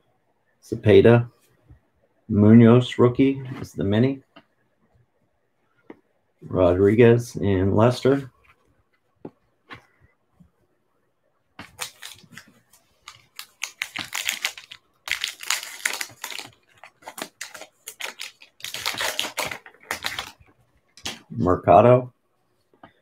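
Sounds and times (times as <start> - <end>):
wrapper tearing and crinkling: 11.6 - 20.4.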